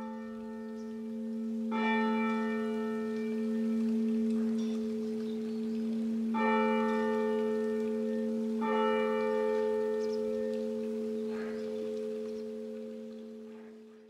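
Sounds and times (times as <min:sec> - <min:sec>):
church bell striking: 0:00.0 - 0:13.9.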